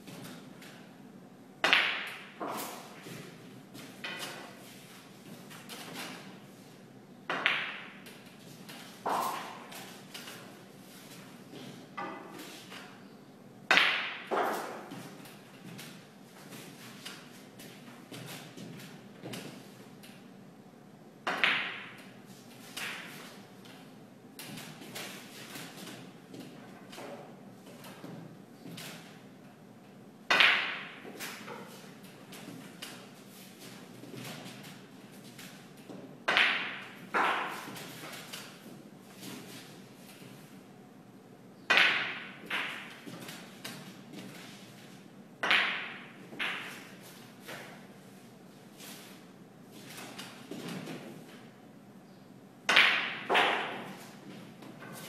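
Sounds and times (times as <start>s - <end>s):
snooker balls clacking: 1.6s - 4.5s, 7.2s - 8.3s, 8.9s - 10.6s, 13.7s - 15.2s, 21.2s - 23.3s, 30.3s - 33.4s, 35.8s - 38.7s, 41.7s - 43.9s, 45.4s - 47.9s, 52.6s - 55.0s.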